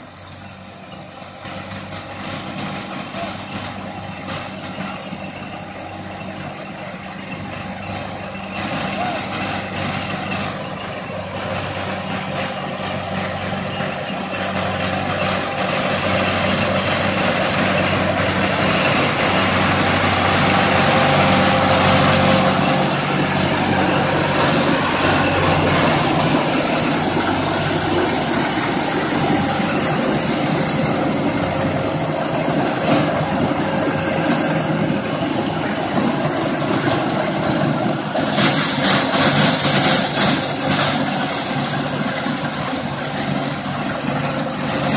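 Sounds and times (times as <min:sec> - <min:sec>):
tractor engine drone: 0:00.0 - 0:44.9
mulcher rotor chopping hiss: 0:38.0 - 0:44.9.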